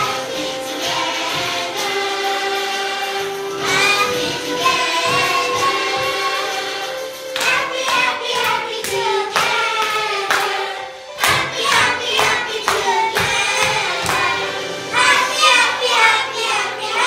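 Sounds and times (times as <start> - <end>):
children singing along to music: 0.0 - 17.0
steady clap-like beat: 3.6 - 6.4, 7.2 - 17.0.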